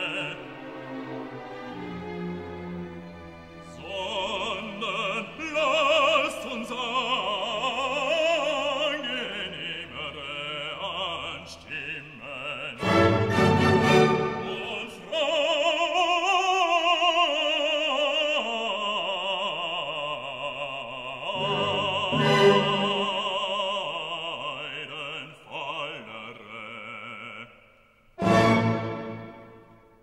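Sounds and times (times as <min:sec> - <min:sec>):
operatic voice singing: 0:00.0 - 0:01.2, 0:03.6 - 0:27.6
classical accompaniment: 0:00.0 - 0:11.3, 0:12.6 - 0:15.9, 0:21.3 - 0:24.0, 0:28.2 - 0:30.0.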